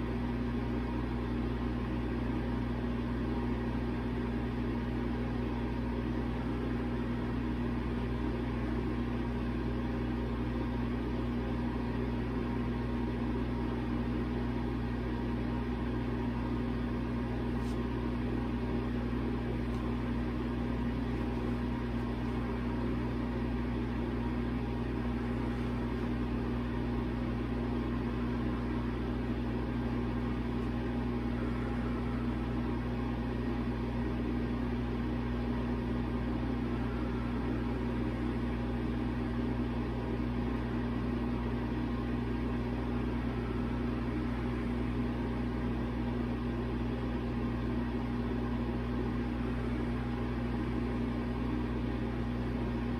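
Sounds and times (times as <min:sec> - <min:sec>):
low mechanical hum: 0:00.0 - 0:52.9.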